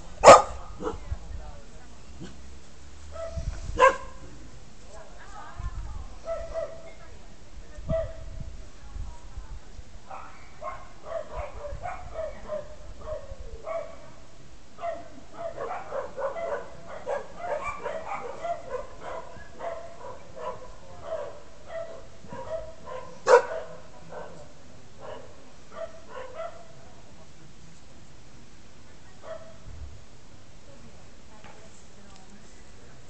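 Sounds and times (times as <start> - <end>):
dog barking: 0.2 - 1.0, 3.1 - 4.2, 6.3 - 6.9, 10.1 - 14.2, 14.8 - 26.8, 29.2 - 29.6.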